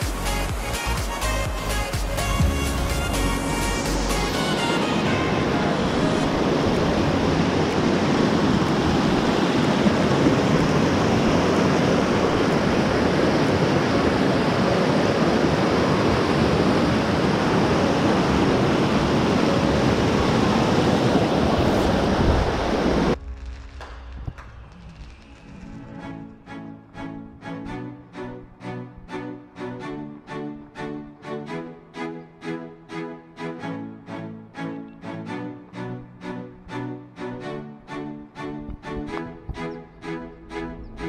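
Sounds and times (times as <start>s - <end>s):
creek rushing over rocks: 4.1s - 23.2s.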